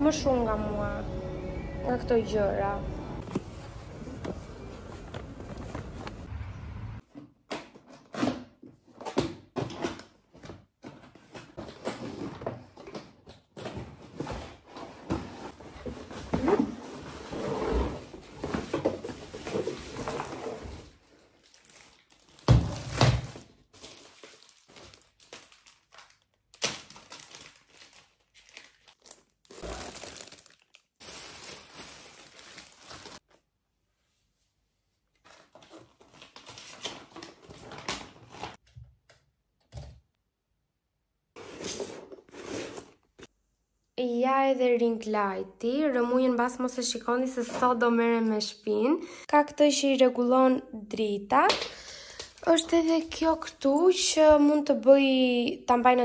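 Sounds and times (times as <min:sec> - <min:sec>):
plastic wrapping crinkling: 0:19.2 - 0:33.4.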